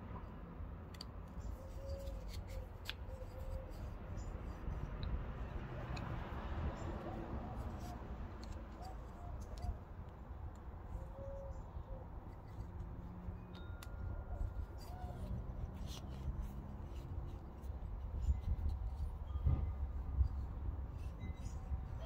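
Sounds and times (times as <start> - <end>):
wood pieces clicking and rubbing: 0.9 - 6.1.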